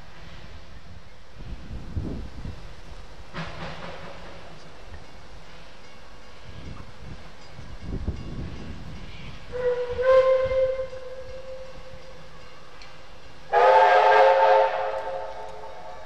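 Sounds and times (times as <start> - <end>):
steam whistle blasts: 9.3 - 12.8, 13.5 - 16.0.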